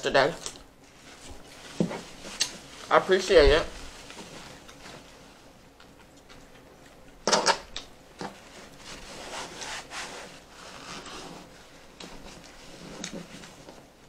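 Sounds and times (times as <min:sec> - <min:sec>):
chewing and mouth noises: 0:05.8 - 0:07.2
rough rubbing scrape: 0:08.8 - 0:11.6.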